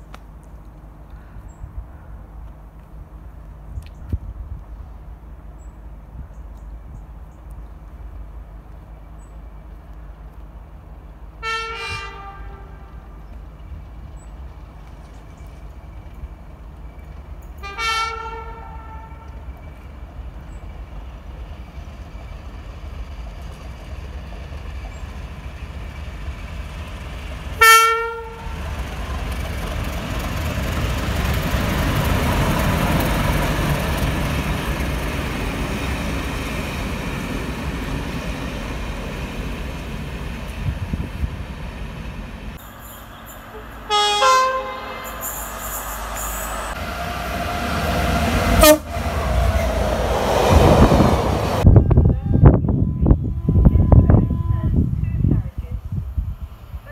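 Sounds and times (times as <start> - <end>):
passenger train rumbling past: 0.0 - 56.9
train horn blast: 11.4 - 13.2, 17.6 - 19.4, 27.6 - 28.6, 43.5 - 45.4, 46.3 - 49.7.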